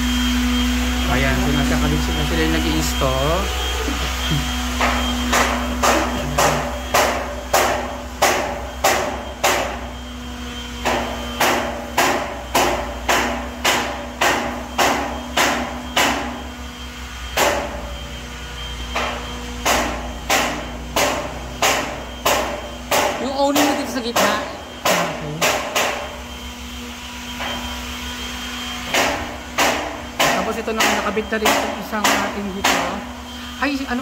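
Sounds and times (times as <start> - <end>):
steady machine hum: 0.0 - 34.0
hammer blows: 1.0 - 26.5, 27.1 - 33.8.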